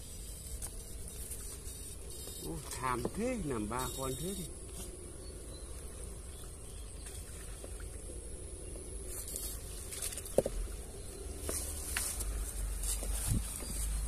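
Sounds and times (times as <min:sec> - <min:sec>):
electrical hum with high whine: 0:00.0 - 0:14.0.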